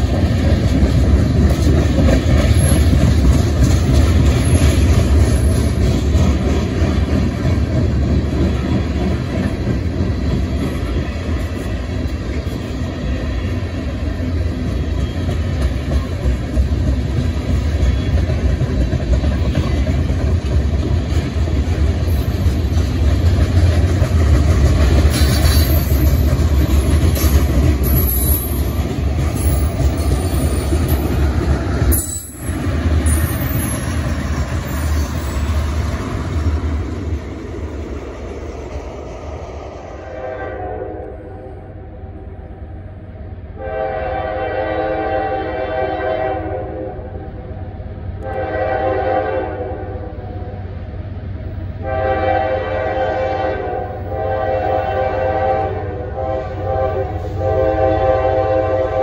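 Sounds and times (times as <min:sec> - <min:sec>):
train rumbling: 0:00.0 - 0:59.0
locomotive air horn blasts: 0:40.0 - 0:41.5, 0:43.6 - 0:47.2, 0:48.2 - 0:50.1, 0:51.8 - 0:59.0.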